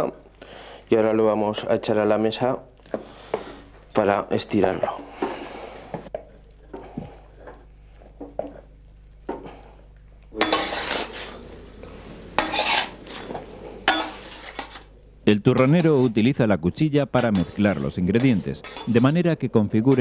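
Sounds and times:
utensil scraping in pan: 10.4 - 15.0, 15.6 - 16.3, 17.2 - 20.0.

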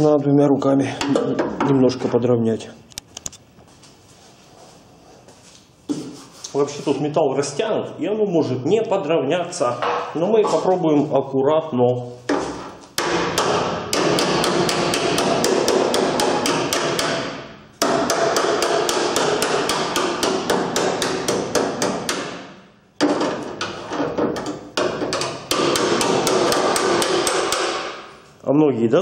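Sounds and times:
hammers beating sheet steel: 12.3 - 28.2.

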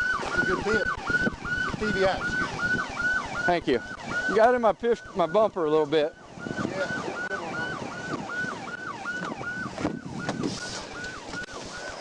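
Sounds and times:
police siren yelping: 0.0 - 12.0.

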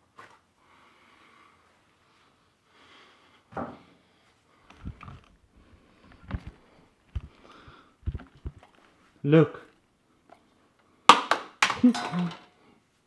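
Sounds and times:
thumps and knocks: 6.2 - 7.4, 8.0 - 8.8.

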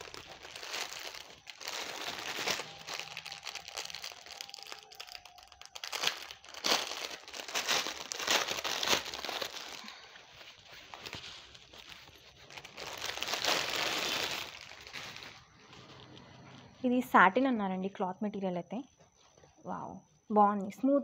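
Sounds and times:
plastic packaging crinkling: 0.0 - 16.8.

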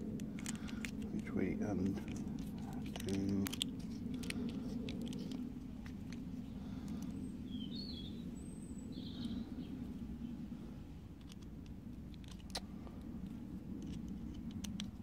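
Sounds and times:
low background hum: 0.0 - 15.0
bird chirps: 6.5 - 9.8.

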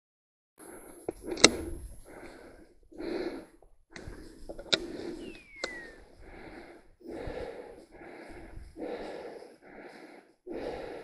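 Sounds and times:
person breathing hard: 0.6 - 11.0.

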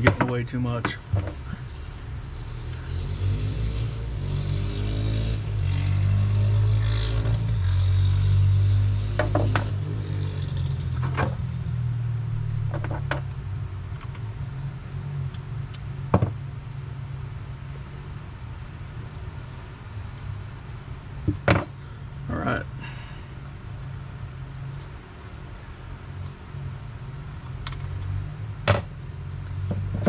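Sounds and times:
off-road engines revving: 0.0 - 11.7.

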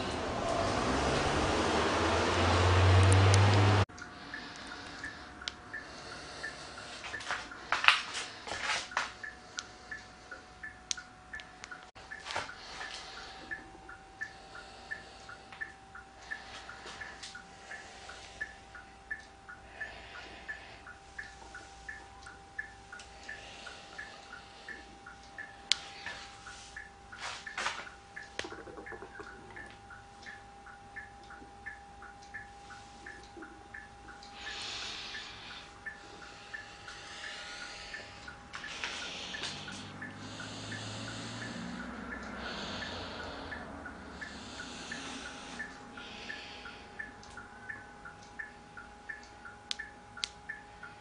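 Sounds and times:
faint steady hum: 0.0 - 51.0
turn-signal flasher ticking: 0.0 - 51.0
car indicator ticking: 26.8 - 34.4, 35.1 - 51.0.

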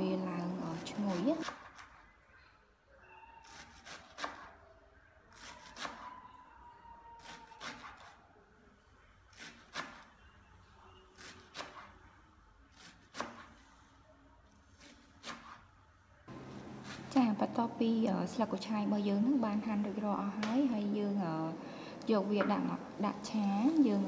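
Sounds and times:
knife chopping on wooden board: 12.8 - 13.5, 16.4 - 17.1.

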